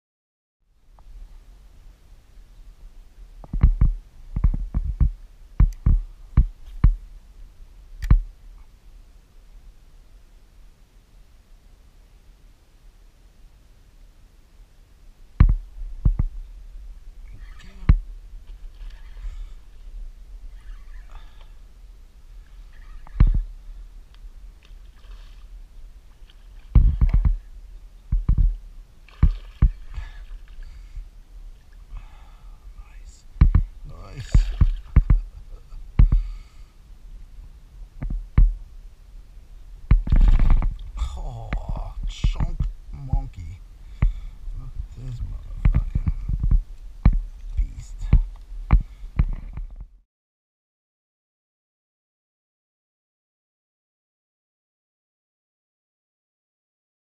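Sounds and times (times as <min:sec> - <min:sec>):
faint water noise: 0:00.7 - 0:49.8
sharp knocks and thumps: 0:03.4 - 0:07.0, 0:15.4 - 0:16.4, 0:23.0 - 0:23.5, 0:26.7 - 0:27.5, 0:28.1 - 0:29.8, 0:33.4 - 0:33.7, 0:34.3 - 0:35.3, 0:36.0 - 0:36.3, 0:38.0 - 0:38.6, 0:39.9 - 0:43.3, 0:45.6 - 0:47.3, 0:48.0 - 0:49.9
hollow knocks on kayak hull: 0:26.7 - 0:27.4, 0:33.4 - 0:33.7.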